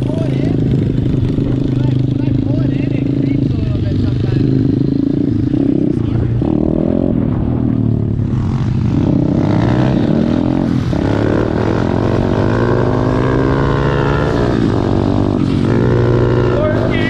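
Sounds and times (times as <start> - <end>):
small motorbike engines running: 0.0 - 17.0.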